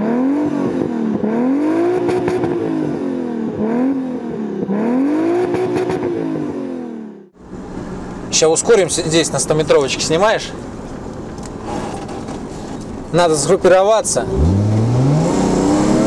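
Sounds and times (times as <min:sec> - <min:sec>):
car engine revving: 0:00.0 - 0:13.0, 0:14.0 - 0:16.0.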